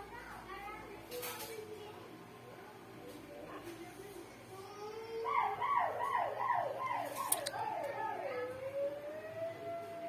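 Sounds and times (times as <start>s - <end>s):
siren wailing: 5.3s - 10.0s
siren yelps: 5.3s - 10.0s.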